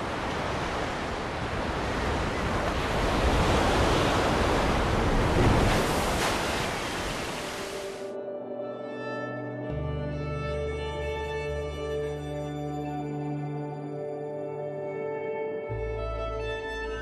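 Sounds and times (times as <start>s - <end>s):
waves breaking: 0.0s - 8.1s.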